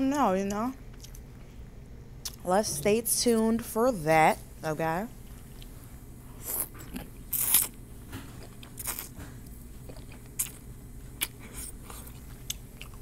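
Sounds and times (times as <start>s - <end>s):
person chewing: 0.9s - 1.3s, 5.2s - 13.0s.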